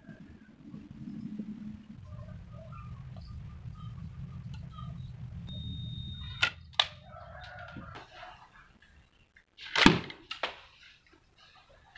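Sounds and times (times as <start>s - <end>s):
rooster crowing: 6.7s - 8.7s.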